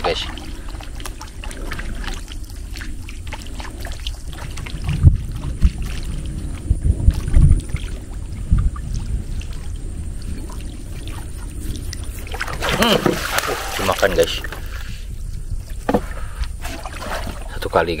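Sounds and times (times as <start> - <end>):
dull low thumps: 0.0 - 13.8
water splashing: 0.0 - 15.0, 15.7 - 18.0
steady low rumble: 0.0 - 18.0.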